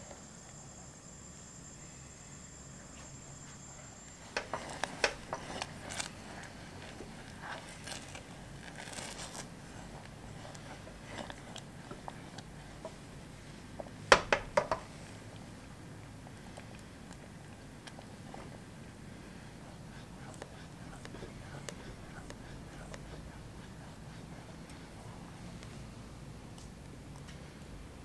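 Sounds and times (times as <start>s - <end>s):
spatula scraping syrup in saucepan: 4.2s - 13.6s.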